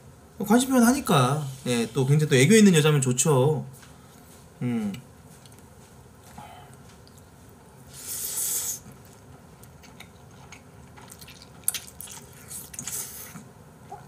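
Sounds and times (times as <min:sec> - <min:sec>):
person chewing: 0:05.3 - 0:14.0
person slurping noodles: 0:07.9 - 0:09.0.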